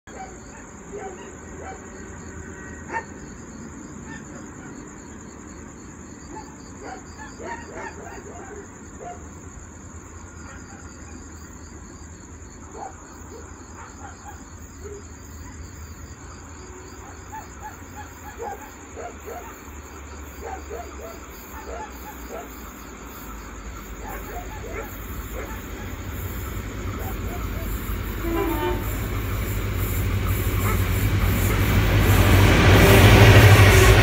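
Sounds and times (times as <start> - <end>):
crickets chirping: 0.1 - 34.0.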